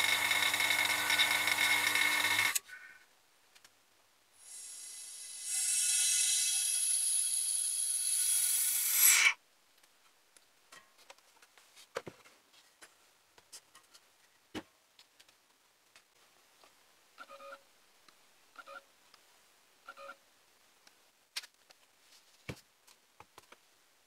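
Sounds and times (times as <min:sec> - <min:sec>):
vacuum hiss with whistling tone: 0:04.4 - 0:09.4.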